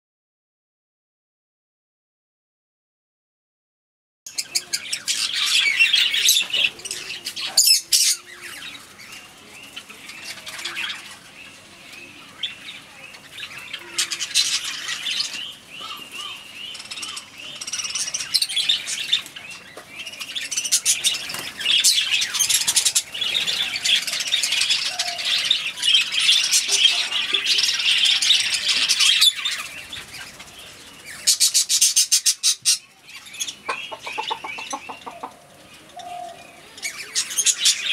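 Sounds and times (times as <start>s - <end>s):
budgerigars chattering and warbling: 4.3s - 37.9s.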